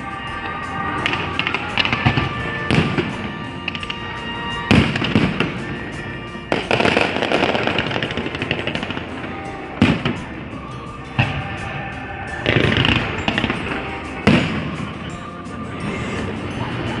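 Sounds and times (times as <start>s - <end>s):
fireworks bangs: 0.0s - 10.5s, 12.4s - 15.1s
fireworks crackling: 0.0s - 17.0s.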